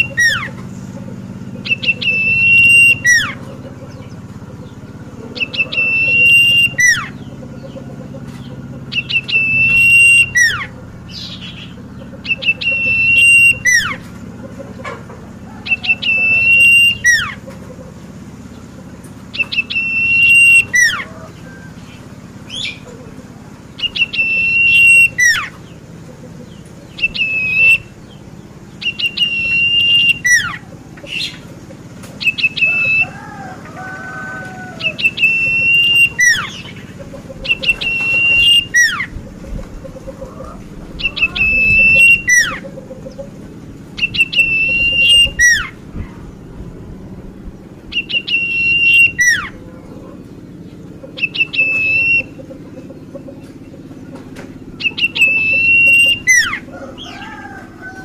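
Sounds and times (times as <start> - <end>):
songbird whistling phrase: 0.0 - 0.6, 1.6 - 3.4, 5.3 - 7.3, 8.9 - 14.0, 15.5 - 17.4, 19.3 - 23.0, 23.8 - 25.7, 26.9 - 28.0, 28.8 - 31.4, 32.2 - 36.8, 37.4 - 39.2, 41.0 - 42.8, 44.0 - 45.8, 47.9 - 50.2, 51.1 - 52.4, 54.7 - 58.0.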